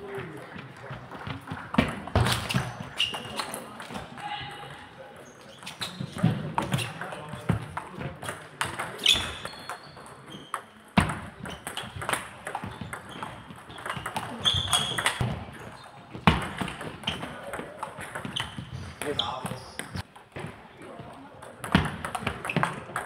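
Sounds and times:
murmur of voices: 0.0 - 10.4
shoe squeaks: 2.3 - 3.6, 5.2 - 7.0, 9.0 - 10.6, 12.7 - 15.2, 18.2 - 20.0.

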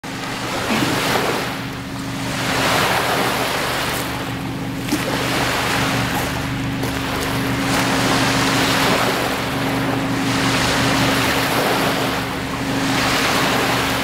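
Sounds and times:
steady low hum: 0.0 - 14.0
waves washing up a pebble shore: 2.2 - 9.5.

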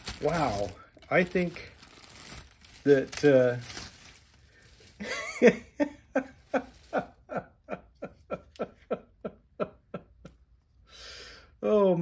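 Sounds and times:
man laughing: 5.0 - 10.3.

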